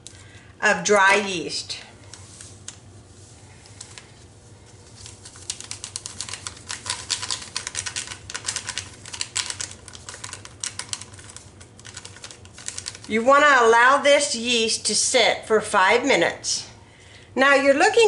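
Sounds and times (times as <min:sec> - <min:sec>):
clicking and crinkling of packet: 0:03.7 - 0:04.1, 0:04.9 - 0:13.2.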